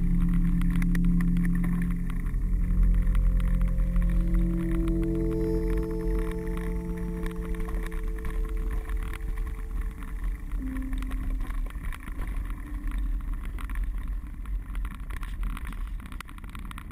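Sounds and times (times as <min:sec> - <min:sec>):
wind and tyres rumbling: 0:00.0 - 0:16.9
bike rattling and clicking: 0:11.4 - 0:16.9.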